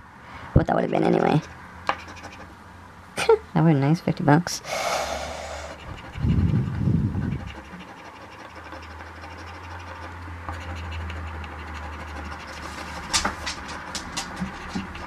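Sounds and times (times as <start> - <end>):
coin scraping scratch ticket: 0.9 - 2.5, 7.3 - 15.0.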